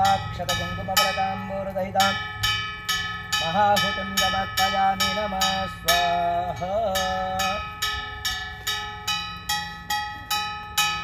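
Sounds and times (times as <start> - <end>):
person chanting: 0.0 - 2.2, 3.4 - 7.7
metal bell struck rhythmically: 0.0 - 11.0.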